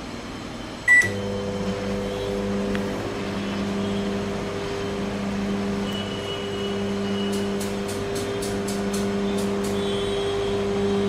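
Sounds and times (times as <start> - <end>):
microwave oven humming: 0.0 - 11.0
short keypad beep: 0.9 - 1.2.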